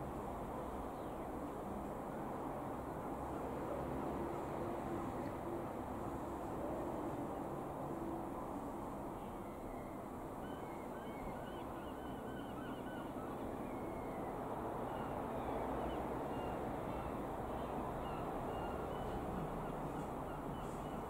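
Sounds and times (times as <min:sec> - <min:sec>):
distant propeller plane drone: 0:00.0 - 0:21.0
birds chirping: 0:10.5 - 0:21.0.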